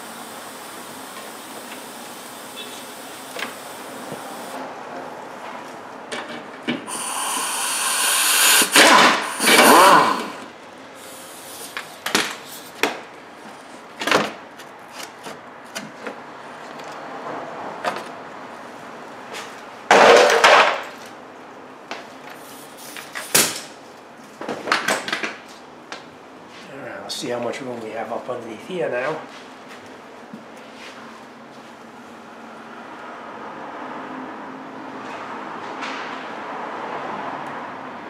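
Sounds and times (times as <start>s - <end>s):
loud scrape: 6.9s - 10.5s
power tool noise: 6.9s - 10.6s.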